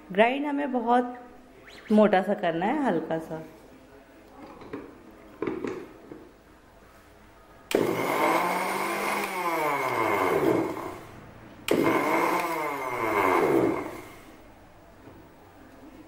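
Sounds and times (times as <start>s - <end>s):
mixer grinder motor whining: 7.7s - 11.1s, 11.7s - 14.2s.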